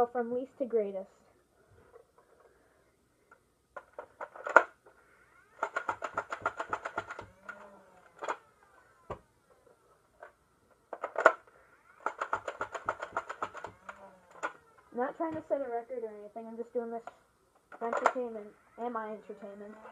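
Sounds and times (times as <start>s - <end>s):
magazine clacking: 3.8s - 4.8s, 5.6s - 8.5s, 10.9s - 14.8s, 17.9s - 18.2s
toy blaster firing darts: 3.8s - 9.8s, 10.9s - 15.6s, 17.0s - 19.9s
flywheel motor whine: 4.8s - 16.0s, 17.8s - 19.9s.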